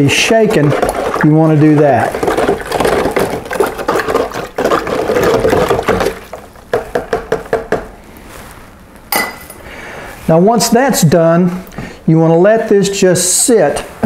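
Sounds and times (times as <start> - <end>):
liquid sloshing: 0.0 - 6.7
ladle stirring mud in a jug: 0.0 - 7.9.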